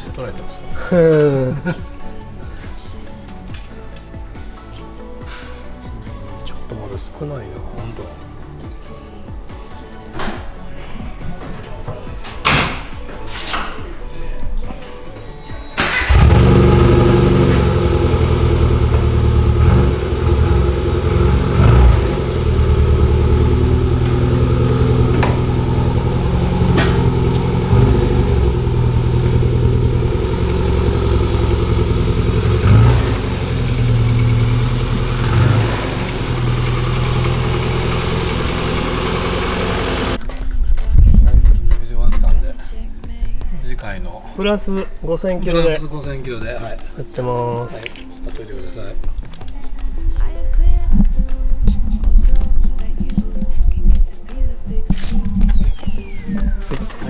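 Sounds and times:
car engine idling and revving: 15.9s - 40.2s.

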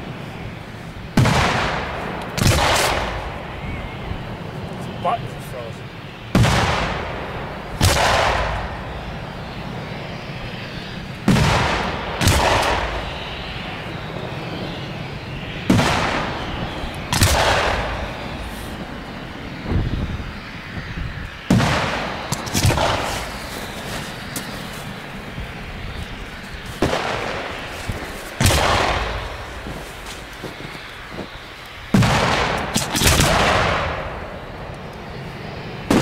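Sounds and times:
firework shells bursting: 21.5s - 25.3s, 26.4s - 35.1s.

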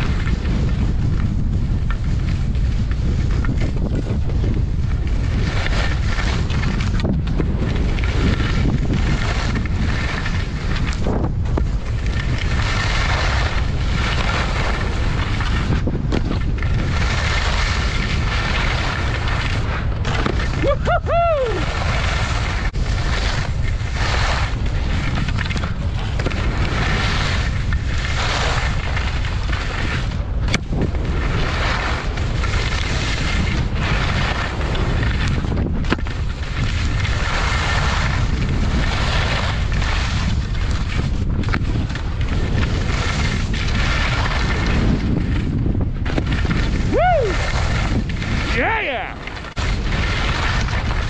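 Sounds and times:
skis scraping packed snow: 0.0s - 51.0s
wind rushing over microphone: 0.0s - 51.0s.

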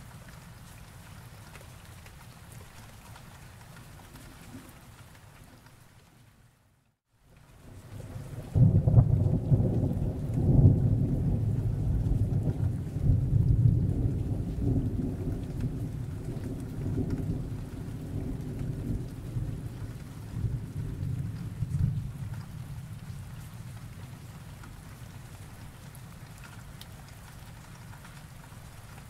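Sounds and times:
rain hiss: 7.2s - 29.0s
thunder rumbling: 8.1s - 24.2s.

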